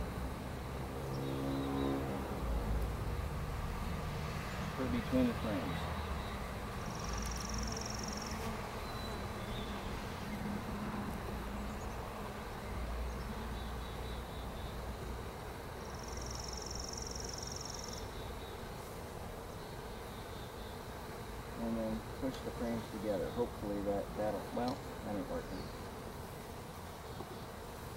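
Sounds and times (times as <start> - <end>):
bees buzzing: 0.0 - 27.9.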